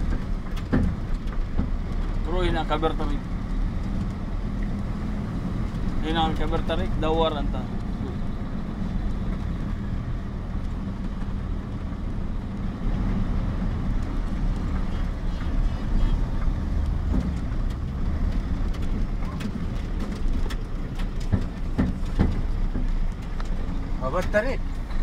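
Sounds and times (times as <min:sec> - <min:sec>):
diesel truck engine running: 0:00.0 - 0:25.0
sharp knocks: 0:18.8 - 0:23.0.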